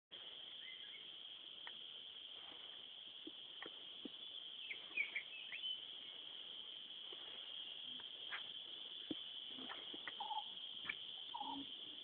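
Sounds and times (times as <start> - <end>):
high-pitched insect drone: 0.3 - 12.0
faint ticks: 1.6 - 1.9, 3.2 - 4.2, 7.0 - 11.6.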